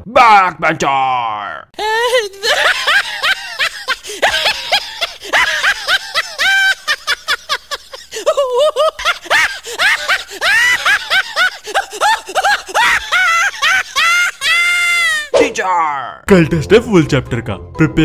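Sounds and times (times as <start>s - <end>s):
person laughing hard: 1.8s - 15.3s.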